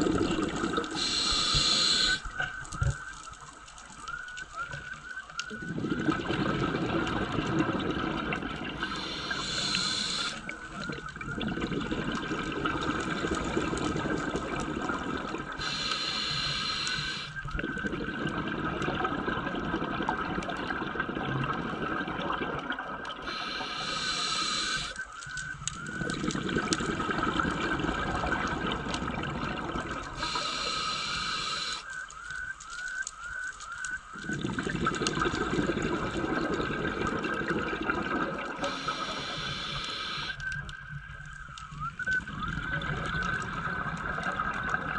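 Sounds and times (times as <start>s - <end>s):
regulator exhaled bubbles rushing: 0.0s - 2.2s, 5.5s - 15.7s, 17.6s - 24.9s, 25.8s - 31.7s, 34.2s - 40.4s, 42.2s - 44.9s
steady underwater noise: 0.0s - 44.9s.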